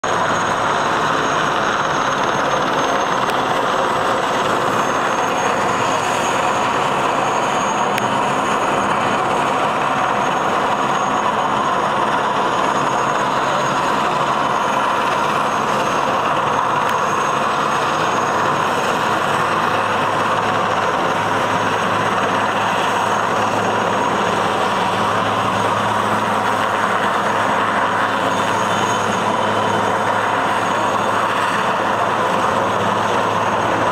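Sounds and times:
helicopter hovering: 0.0s - 33.9s.

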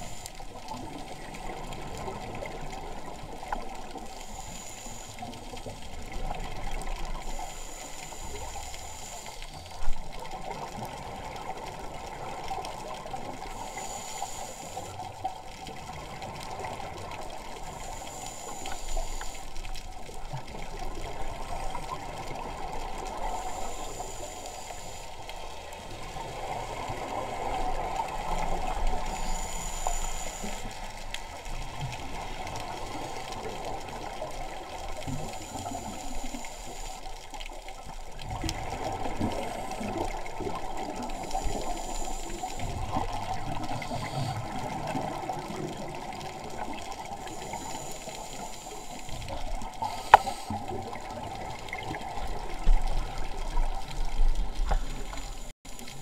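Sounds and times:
regulator breathing hiss: 0.0s - 0.8s, 3.0s - 5.7s, 7.2s - 9.9s, 13.4s - 15.2s, 17.5s - 19.7s, 23.1s - 25.8s, 28.2s - 31.0s, 35.2s - 37.2s, 39.4s - 44.8s, 47.0s - 51.0s
underwater bubbling: 0.0s - 56.0s.

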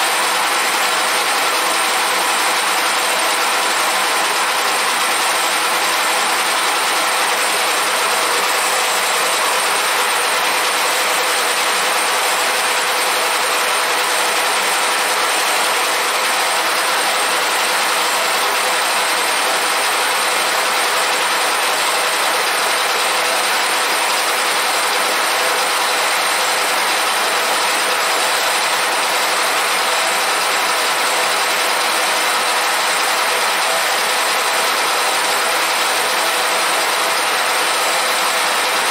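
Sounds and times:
surfacing machine cutter running: 0.0s - 38.9s.

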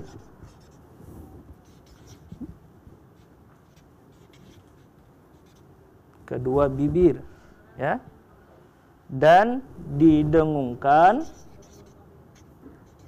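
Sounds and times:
marker scratching on whiteboard: 0.0s - 5.7s, 11.1s - 13.0s.

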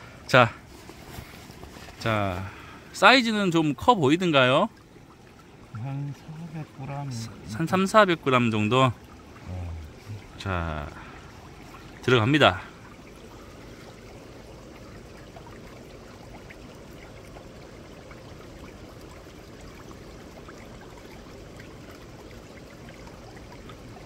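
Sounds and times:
shallow water trickling: 0.0s - 24.0s.

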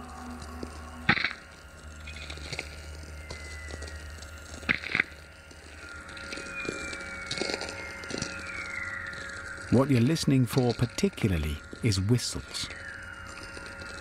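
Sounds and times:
low radio hum: 0.0s - 14.0s
falling whistle tones: 5.9s - 10.2s.

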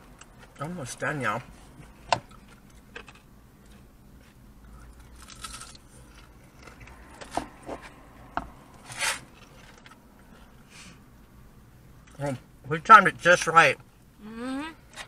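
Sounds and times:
biting and chewing fried food: 2.0s - 8.3s.

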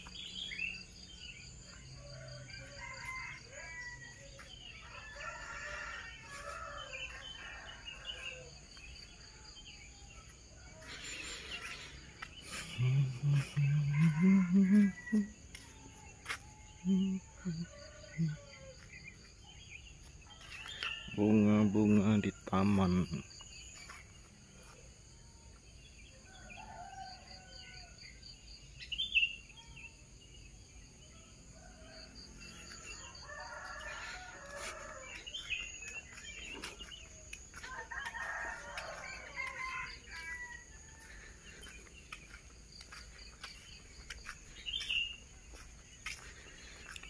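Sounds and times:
insects chirring: 0.0s - 24.4s, 31.5s - 47.0s
roosters crowing: 1.8s - 8.6s, 9.2s - 18.8s, 31.5s - 43.6s.

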